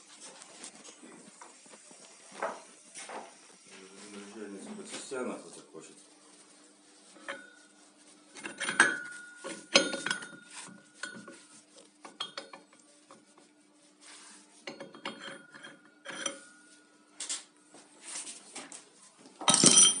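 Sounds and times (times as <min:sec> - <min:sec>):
metal shaft knocking and clinking: 0:08.4 - 0:11.4, 0:14.7 - 0:16.7, 0:19.5 - 0:20.0.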